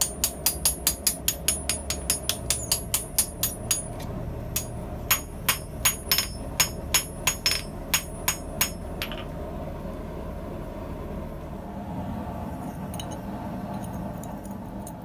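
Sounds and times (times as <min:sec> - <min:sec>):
hammer striking steel on anvil: 0:00.0 - 0:09.3
steady low hum: 0:00.0 - 0:15.0.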